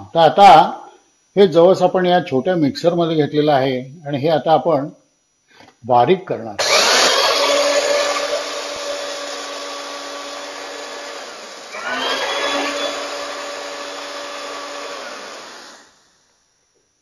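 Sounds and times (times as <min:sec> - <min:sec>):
mixer grinder grinding seeds: 0:06.6 - 0:15.9.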